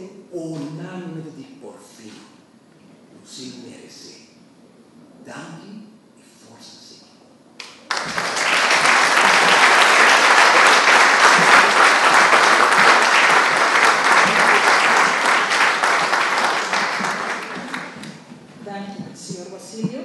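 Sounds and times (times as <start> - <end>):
audience applauding: 7.6 - 18.3.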